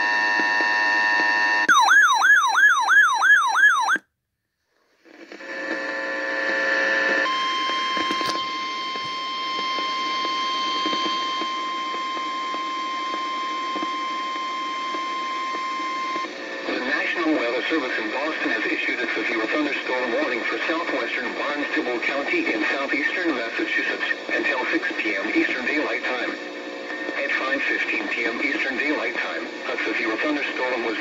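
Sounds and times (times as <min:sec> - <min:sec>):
steady warning alarm tone: 0:01.7 - 0:04.0
warbling electronic alarm siren: 0:01.7 - 0:04.0
radio hiss: 0:16.7 - 0:31.0.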